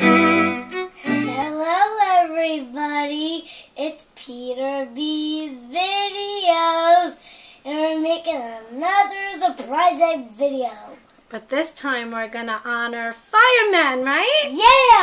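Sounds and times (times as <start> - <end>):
child singing: 1.1 - 11.0.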